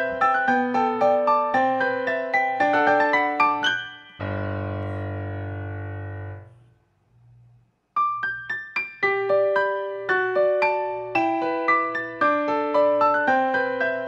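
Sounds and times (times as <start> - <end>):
piano music: 0.0 - 6.6, 7.9 - 14.0.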